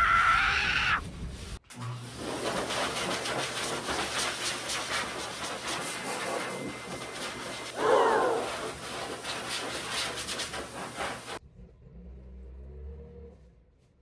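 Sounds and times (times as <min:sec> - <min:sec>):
blower air rushing hiss: 0:00.6 - 0:11.4.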